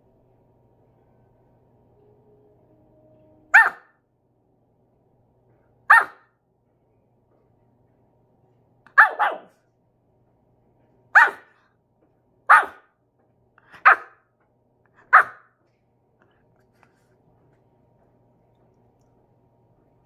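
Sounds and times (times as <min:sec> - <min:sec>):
puppy barking: 0:03.5 - 0:04.0, 0:05.9 - 0:06.3, 0:08.9 - 0:09.6, 0:11.2 - 0:11.6, 0:12.5 - 0:12.9, 0:13.8 - 0:14.3, 0:15.0 - 0:15.6.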